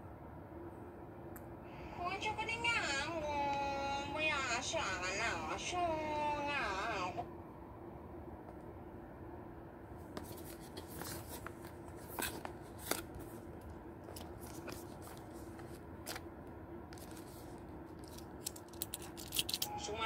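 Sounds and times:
cardboard packaging crinkles and clicks: 10.2 - 16.2, 17.0 - 19.7.

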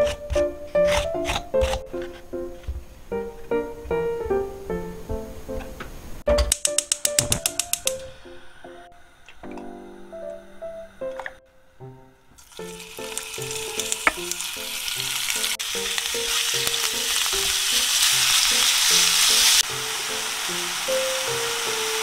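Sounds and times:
meat sizzling in oil: 12.4 - 22.0.

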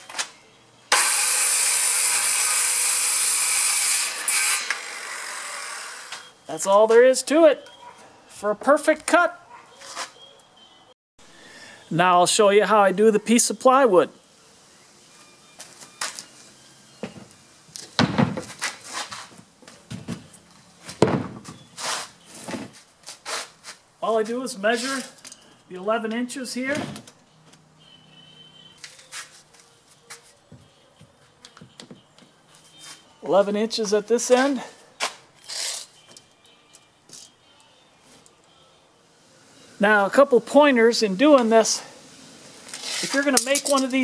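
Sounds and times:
circular saw cutting wood: 0.9 - 6.4, 41.1 - 44.0.

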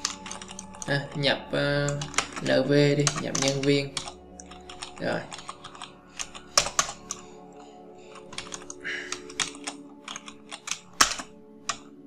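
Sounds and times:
computer keyboard typing: 0.0 - 1.2, 1.8 - 7.2, 8.1 - 12.0.

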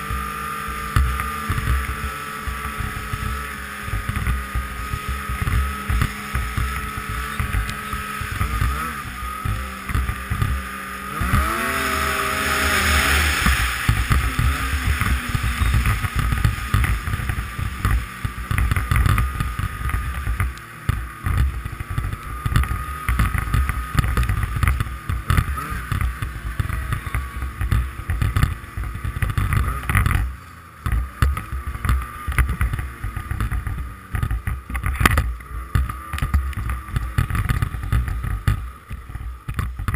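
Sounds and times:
snowmobile engine revving: 0.0 - 39.9
steady high whine: 0.0 - 39.9.

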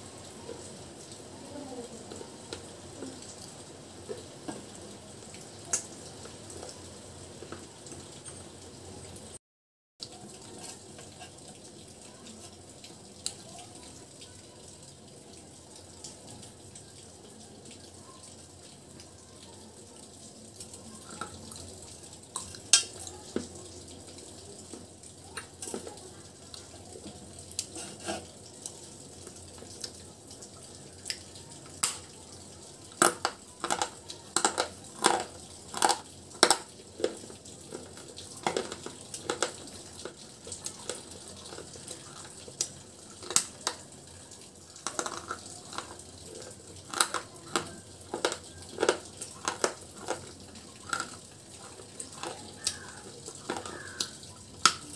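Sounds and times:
crunching and chewing: 33.0 - 42.4, 44.8 - 54.1.

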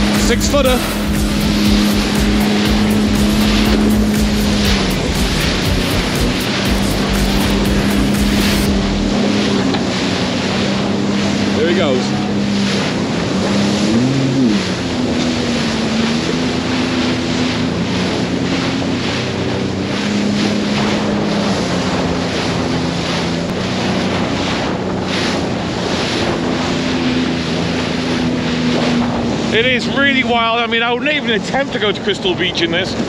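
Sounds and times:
personal watercraft engine running: 0.0 - 33.0
rushing water: 0.0 - 33.0.

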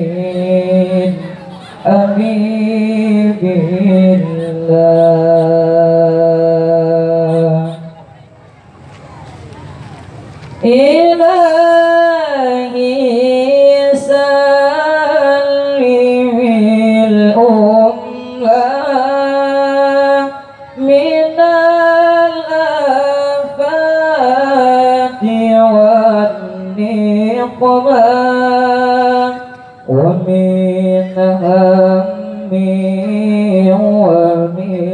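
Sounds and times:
man reciting melodically into microphone: 0.0 - 8.0, 10.6 - 34.9.

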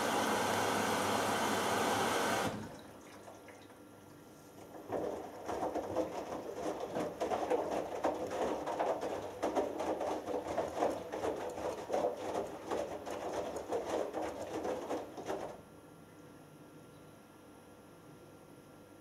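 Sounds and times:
laundry tumbling with soft thuds: 4.6 - 15.6.

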